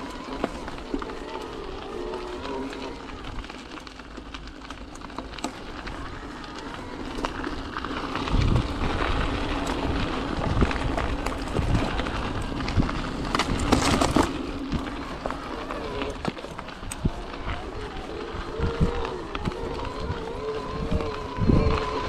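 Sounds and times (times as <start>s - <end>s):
bike frame and chain rattling: 0.0s - 22.0s
bike tyres on dirt trail: 0.0s - 22.0s
wind rumble on microphone: 5.3s - 22.0s.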